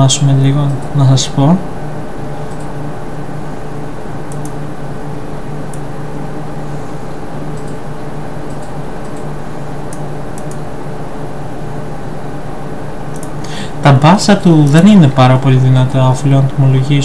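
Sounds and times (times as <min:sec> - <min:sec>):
tonal hum and hiss: 0:00.0 - 0:17.0
faint high ticks: 0:13.1 - 0:13.3.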